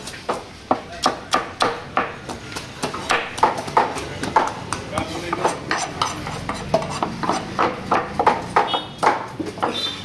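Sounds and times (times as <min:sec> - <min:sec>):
knife scraping fish scales: 0:05.3 - 0:07.6.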